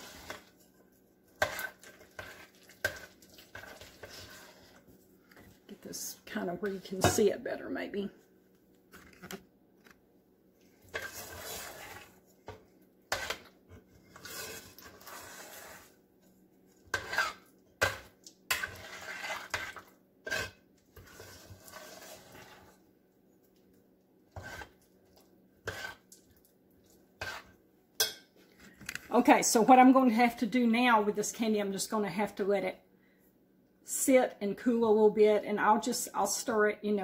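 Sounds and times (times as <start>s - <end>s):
metal spoon scraping a pot: 0.0s - 0.8s, 1.4s - 4.9s, 10.8s - 12.3s, 13.1s - 16.0s, 16.8s - 22.8s, 24.3s - 24.8s, 25.6s - 26.1s, 27.2s - 28.2s.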